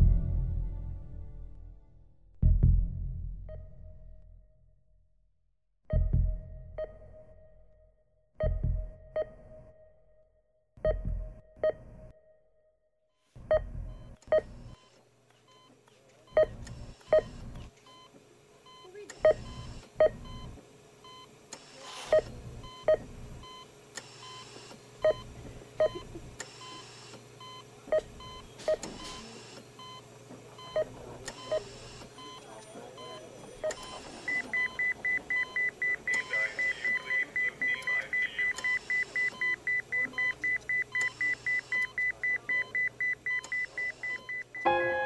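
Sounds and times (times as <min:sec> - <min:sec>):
electronic beeps in pairs: 0:26.6 - 0:44.7.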